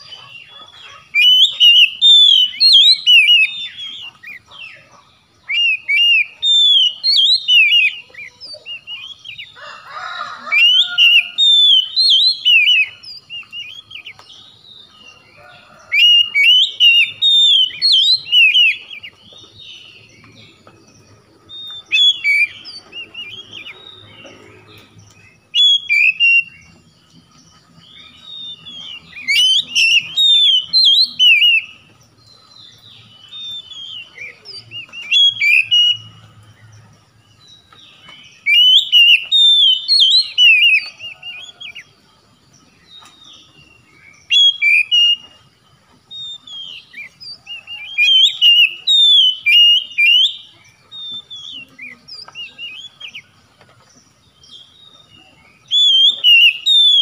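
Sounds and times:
bird singing whistled phrases: 0:00.0 - 0:04.4, 0:05.4 - 0:09.5, 0:10.6 - 0:14.2, 0:15.8 - 0:19.2, 0:21.5 - 0:24.1, 0:25.5 - 0:26.8, 0:28.0 - 0:31.9, 0:33.0 - 0:36.2, 0:38.4 - 0:41.8, 0:44.2 - 0:45.4, 0:46.1 - 0:53.3, 0:54.6 - 0:57.0.

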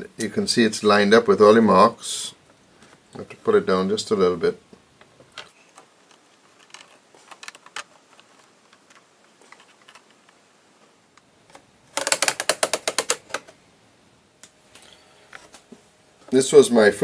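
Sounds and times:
wooden strips tapping: 0:11.9 - 0:13.6
ratchet-like clicks: 0:12.0 - 0:13.4.

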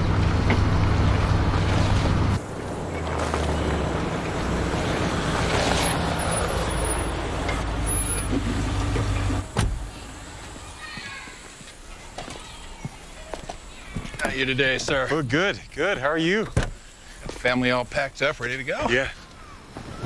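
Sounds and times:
truck engine running: 0:00.0 - 0:10.7
broad hiss: 0:09.5 - 0:18.7.

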